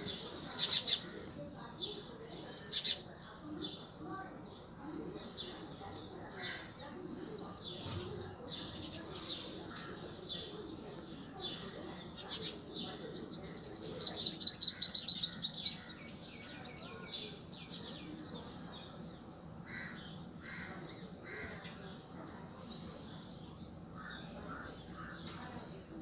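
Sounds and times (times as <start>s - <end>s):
birds chirping: 0.0s - 26.0s.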